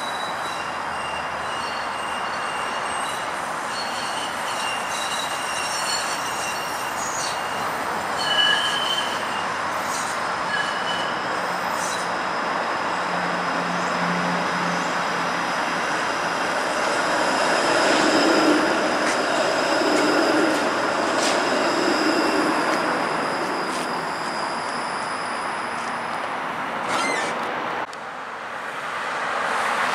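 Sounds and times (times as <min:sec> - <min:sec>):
wheels squealing on rails: 0:00.0 - 0:27.5
streetcar rolling on track: 0:00.0 - 0:29.9.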